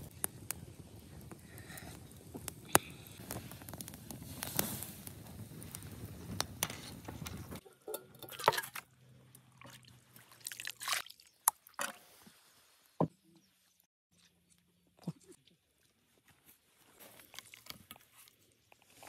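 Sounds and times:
campfire crackling: 0.0 - 8.3
ladle scooping soup: 7.6 - 8.8
fish splashing into metal bowl: 7.6 - 8.9.

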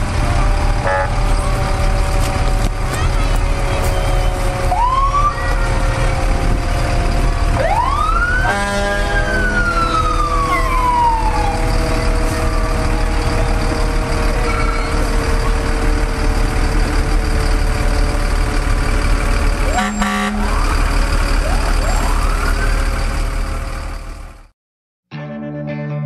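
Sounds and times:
diesel engines running: 0.0 - 24.5
fire engine siren wailing: 0.0 - 24.5
horn blast: 8.4 - 10.0, 19.7 - 20.6.

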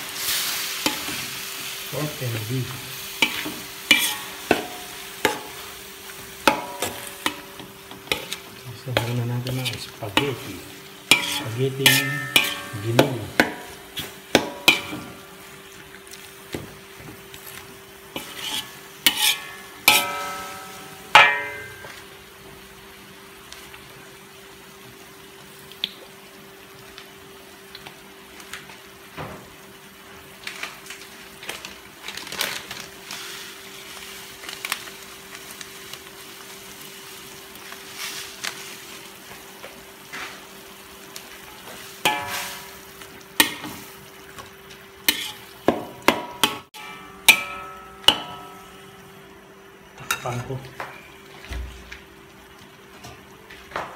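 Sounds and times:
meat sizzling in a pan: 0.0 - 53.9
metal spoon scraping a wok: 3.2 - 5.6, 6.5 - 10.5, 11.1 - 12.8, 18.2 - 21.8, 45.1 - 45.5.

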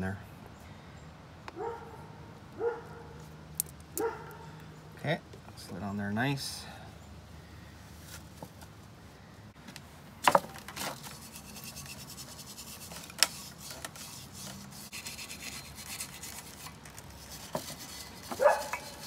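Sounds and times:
hand tool scraping metal: 10.8 - 19.0.

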